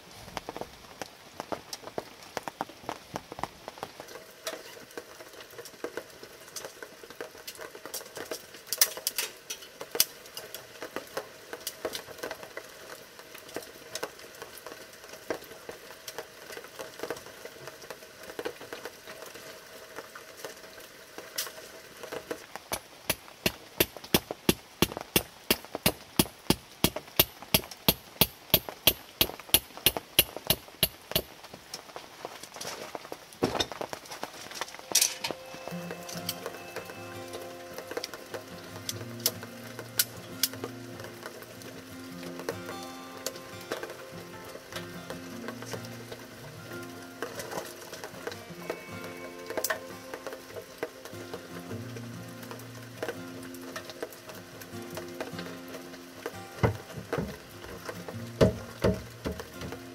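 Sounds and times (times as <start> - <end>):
mallet hammering metal stake: 22.7 - 31.3.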